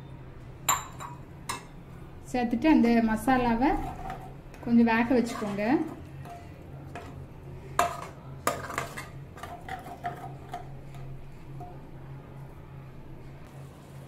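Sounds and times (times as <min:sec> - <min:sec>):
steady low hum: 0:00.0 - 0:14.0
ladle stirring in a pan: 0:05.1 - 0:11.7.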